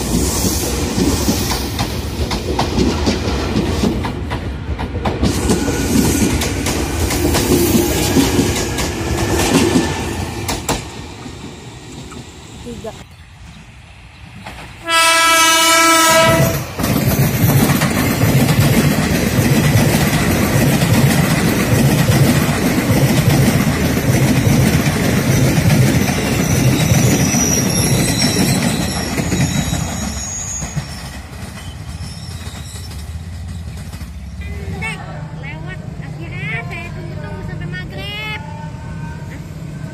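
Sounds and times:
train wheels on rails: 0.0s - 36.0s
train horn blast: 14.8s - 16.7s.

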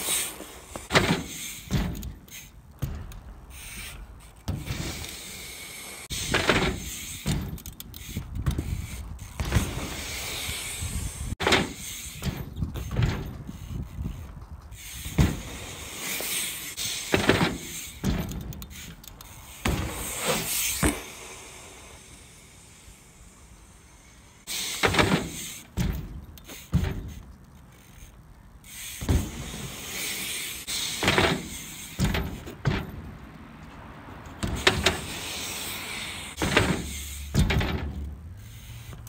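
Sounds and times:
bike knocks and clatters: 0.0s - 21.3s, 24.4s - 39.0s
bike tyres rolling on ramps: 0.0s - 39.0s
bike rushing past: 28.8s - 39.0s.

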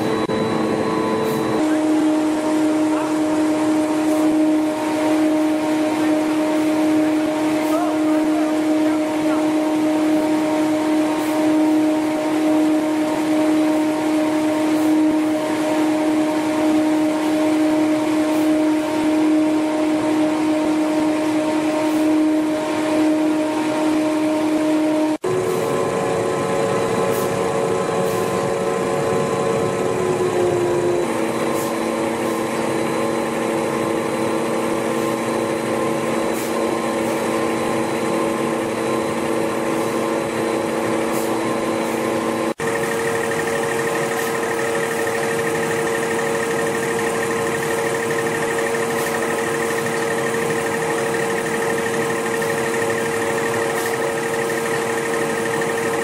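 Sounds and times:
held machine tones: 0.0s - 10.7s
machine hum of motors and rollers: 0.0s - 56.0s.

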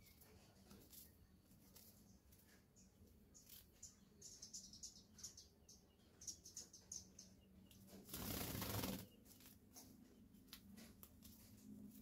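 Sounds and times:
high bird chirps: 2.8s - 7.8s
bird wings fluttering: 8.0s - 9.6s.

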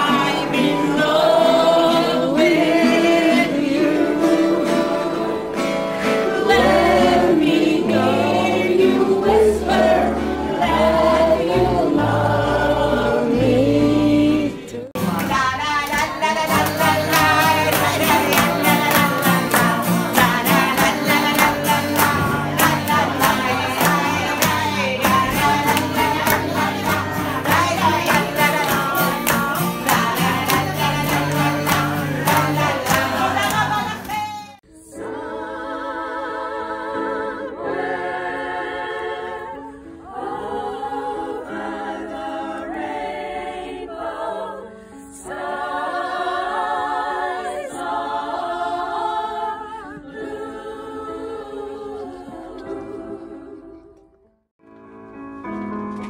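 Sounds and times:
women's choir singing: 0.0s - 54.0s
woman singing: 13.9s - 34.6s
acoustic guitar strumming: 15.0s - 34.6s.

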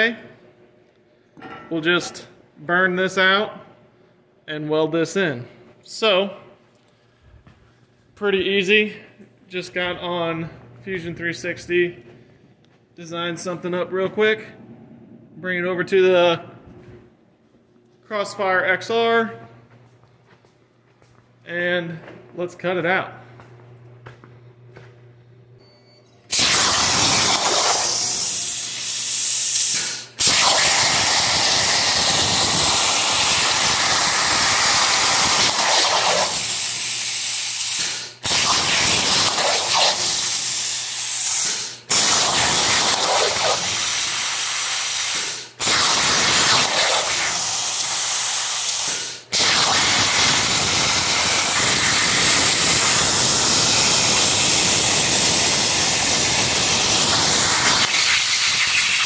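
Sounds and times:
plasma torch hissing: 26.3s - 59.0s.

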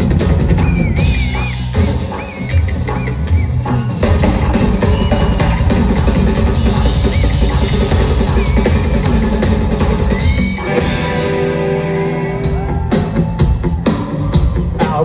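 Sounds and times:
band holding notes: 0.0s - 15.0s
rock drum solo: 0.0s - 15.0s.

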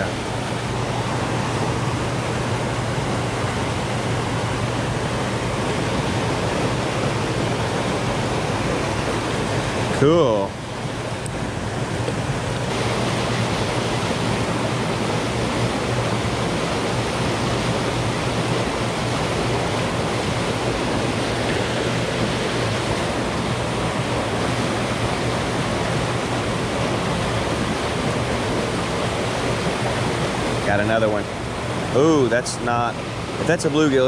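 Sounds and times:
rushing turbulent water: 0.0s - 34.0s.

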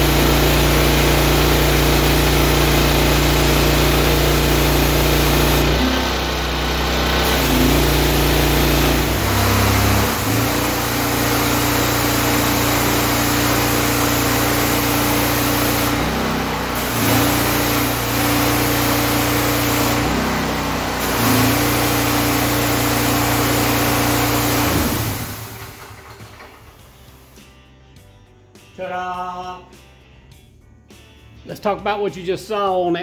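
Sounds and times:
engine running pressure washer: 0.0s - 27.4s
water spraying onto concrete: 7.2s - 26.6s.

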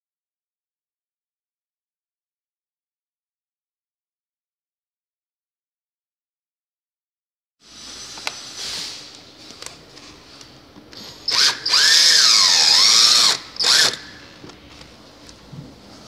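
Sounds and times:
cordless drill motor: 11.3s - 14.2s.

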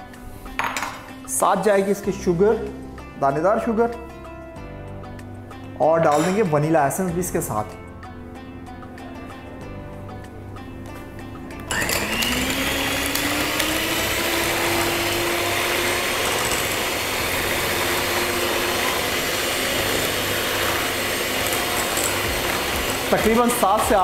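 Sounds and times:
electric hand mixer whirring: 11.6s - 24.0s
beaters whisking in glass bowl: 11.9s - 24.0s.

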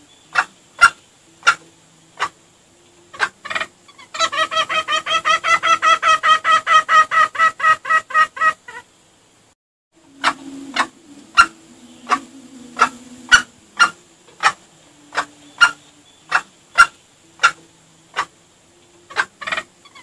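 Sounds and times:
junglefowl clucking: 0.0s - 8.9s, 10.0s - 20.0s
low held tone: 10.0s - 16.3s.

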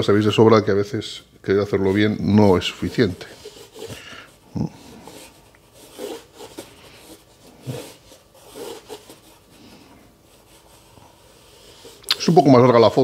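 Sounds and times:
pencil scratching on paper: 2.4s - 4.1s, 5.0s - 9.6s, 10.2s - 12.0s.

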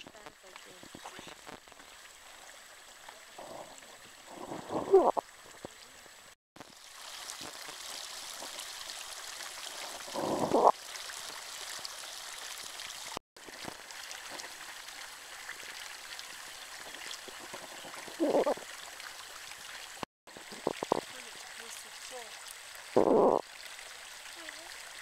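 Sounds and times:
spring water bubbling: 0.0s - 25.0s
water pouring from spout: 6.6s - 25.0s
short voices: 10.0s - 10.7s, 17.6s - 18.6s, 23.0s - 23.4s.

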